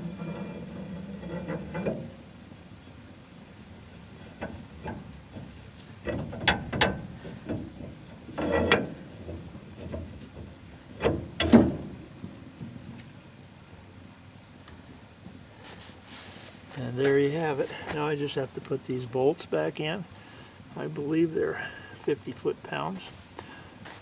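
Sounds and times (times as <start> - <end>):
metal clicks and scraping: 0.0 - 2.3, 4.2 - 11.9
sharp metal clunks: 4.4 - 12.0.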